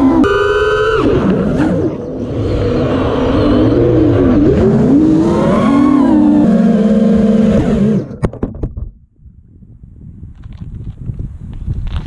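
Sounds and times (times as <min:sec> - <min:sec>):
drone motors whining: 0:00.0 - 0:08.3.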